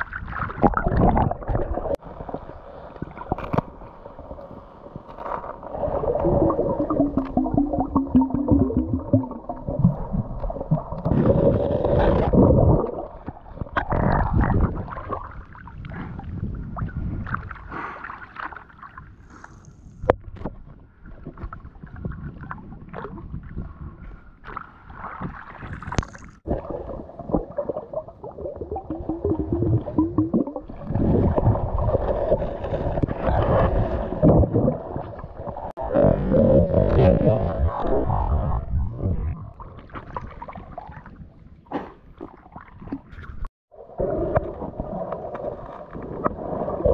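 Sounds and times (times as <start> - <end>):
muffled water sloshing and gurgling: 0.0 - 46.9.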